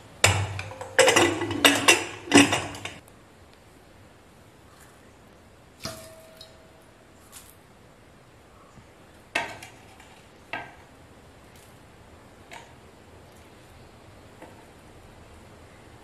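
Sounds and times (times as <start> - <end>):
plate knocks and clinks: 0.2 - 3.0.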